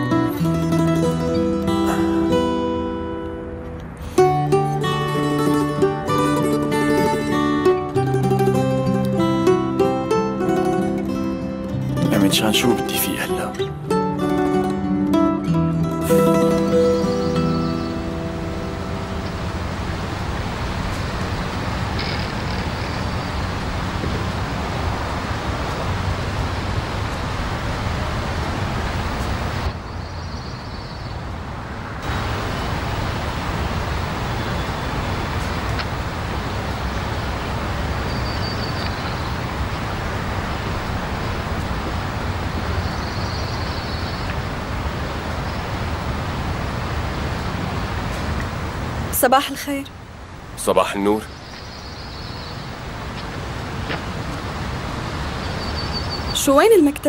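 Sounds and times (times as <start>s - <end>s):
steady rushing noise: 16.7s - 30.0s, 31.1s - 56.0s.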